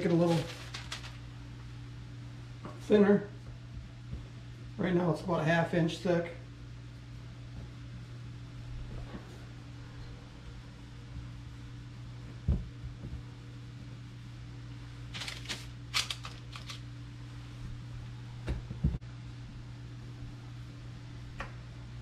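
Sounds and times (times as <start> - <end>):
parchment paper crinkling: 0.0 - 1.4, 15.1 - 16.8
steady low hum: 0.0 - 22.0.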